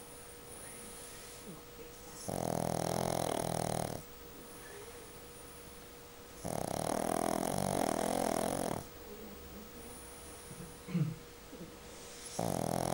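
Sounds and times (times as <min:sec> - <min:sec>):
dog breathing quietly: 0:00.4 - 0:05.1, 0:11.8 - 0:12.9
dog snoring: 0:02.2 - 0:04.1, 0:06.4 - 0:08.9, 0:12.0 - 0:12.9.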